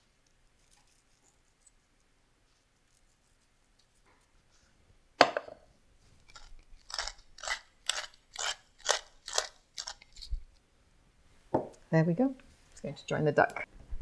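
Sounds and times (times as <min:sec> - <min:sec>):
pepper mill grinding: 0:06.2 - 0:10.4.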